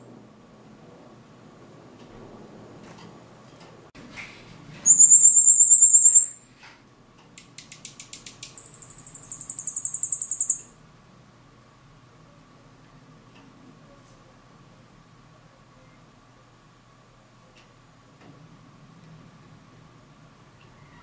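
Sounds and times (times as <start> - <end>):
bird singing high trills: 4.8 - 6.4, 8.4 - 10.8
quiet ticking bird notes: 4.8 - 6.4, 7.3 - 10.8.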